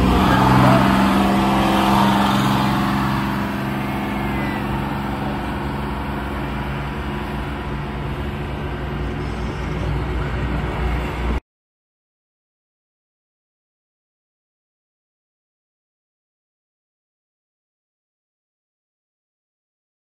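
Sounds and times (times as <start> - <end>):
bus diesel engine droning: 0.0 - 11.4.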